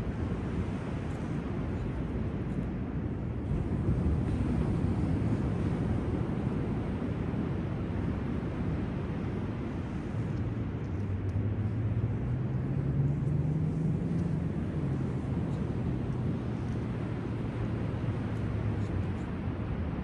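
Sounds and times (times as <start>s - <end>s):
low engine hum: 0.0s - 20.0s
wind noise: 0.0s - 20.0s.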